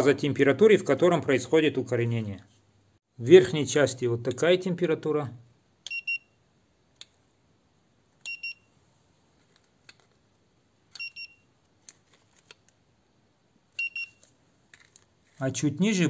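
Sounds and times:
thermometer beeping: 0:05.8 - 0:06.4, 0:08.2 - 0:08.7, 0:10.9 - 0:11.5, 0:13.8 - 0:14.3.

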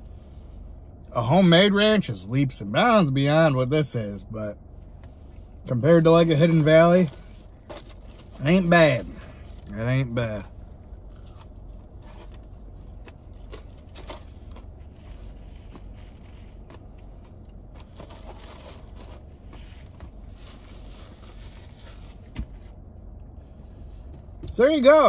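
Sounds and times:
low hum: 0:00.0 - 0:25.0
person chewing: 0:10.6 - 0:18.0.

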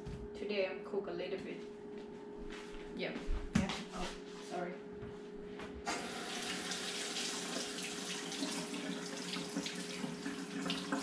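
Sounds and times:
faucet turning on: 0:05.9 - 0:11.0
tap water running into sink: 0:05.9 - 0:11.0.

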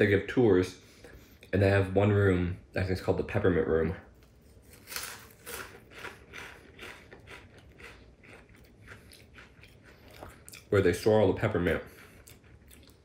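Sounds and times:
crisp crunches of chewing: 0:04.6 - 0:11.1, 0:11.7 - 0:13.0.

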